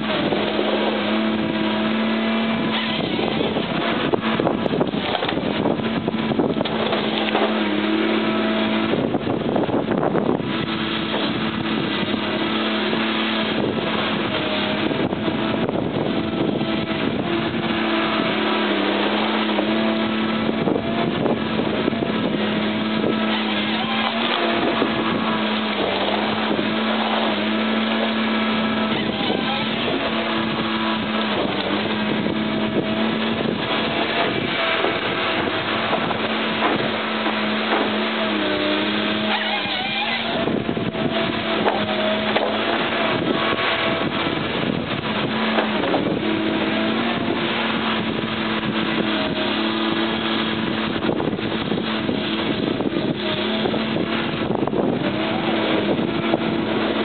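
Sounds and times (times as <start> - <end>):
diesel engine running: 0.0 - 57.0
rattling and knocking of logs: 0.1 - 15.4, 21.9 - 44.3.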